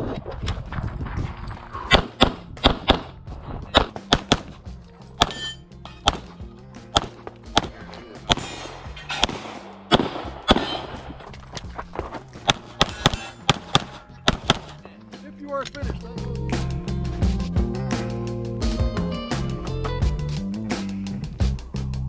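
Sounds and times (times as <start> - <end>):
background music with bass line: 0.6 - 22.0
pistol shots: 1.9 - 4.6, 6.0 - 11.2, 12.4 - 14.8.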